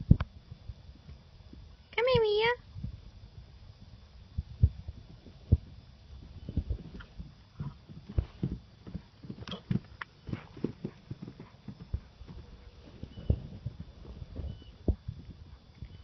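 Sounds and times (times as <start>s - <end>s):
horse hoofbeats on grass: 4.4s - 16.0s.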